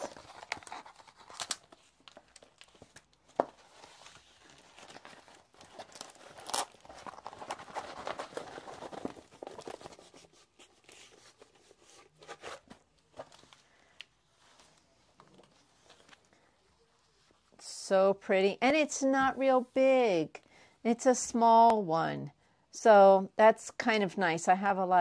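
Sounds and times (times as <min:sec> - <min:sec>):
plastic film rustling and crinkling: 0:00.0 - 0:16.4.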